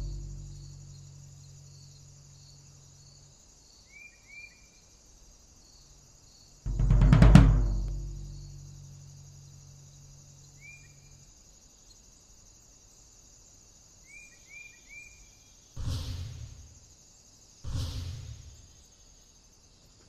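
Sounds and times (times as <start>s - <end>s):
booming percussion hit: 0.0s - 2.0s, 6.7s - 9.1s, 15.8s - 16.8s, 17.7s - 18.7s
low hum: 0.0s - 3.4s, 6.7s - 11.2s
high insect buzz: 0.0s - 20.0s.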